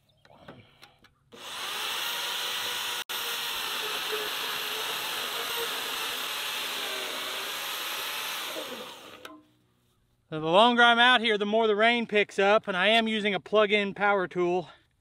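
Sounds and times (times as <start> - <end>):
bandsaw cutting steel pipe: 1.4 - 9.4.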